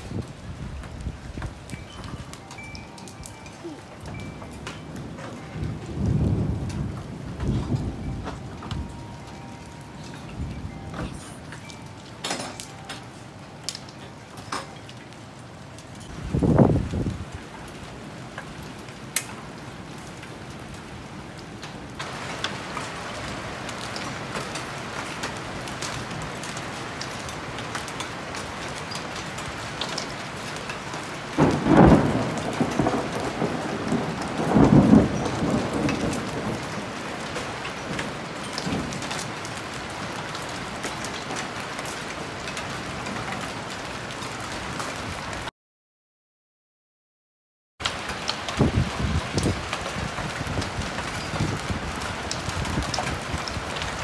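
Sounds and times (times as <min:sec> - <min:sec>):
hailstones ticking: 0:00.0 - 0:45.5, 0:47.8 - 0:54.0
rain hissing: 0:00.0 - 0:45.5, 0:47.8 - 0:54.0
thunder rumbling: 0:03.6 - 0:11.8, 0:16.2 - 0:18.7, 0:28.5 - 0:41.4, 0:48.0 - 0:54.0.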